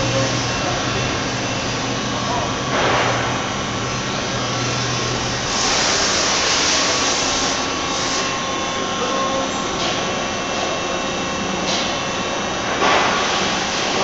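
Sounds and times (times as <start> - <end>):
shop machinery humming: 0.0 - 14.0
loud rushing hiss: 4.9 - 8.4.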